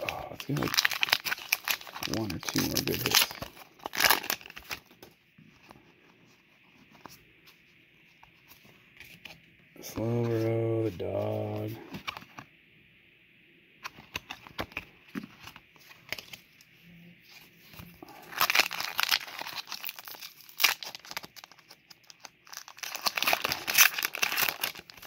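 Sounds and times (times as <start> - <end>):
foil wrapper crinkling and tearing: 0.0 - 5.0, 18.0 - 25.0.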